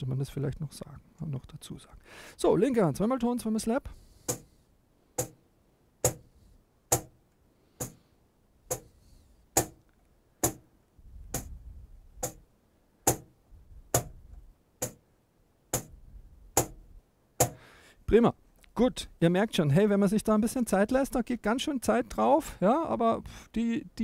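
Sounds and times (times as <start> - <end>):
cajon bass tones and slaps: 11.3 - 11.6, 13.9 - 15.0.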